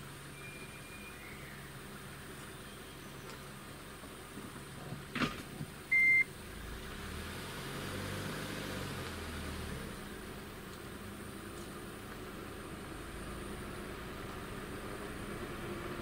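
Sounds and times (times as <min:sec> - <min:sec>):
vehicle engine rumble: 0:00.0 - 0:16.0
short high electronic beep: 0:05.9 - 0:06.3.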